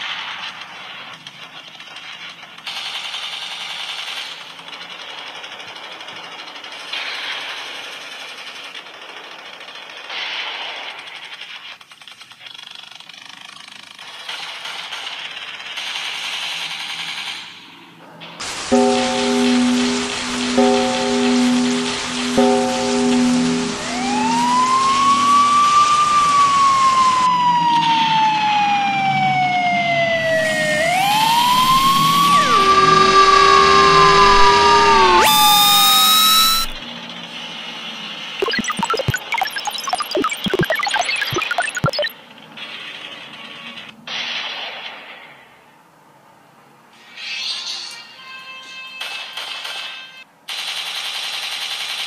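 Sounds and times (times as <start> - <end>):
siren wailing: 18.7 - 36.8, 38.4 - 42.1.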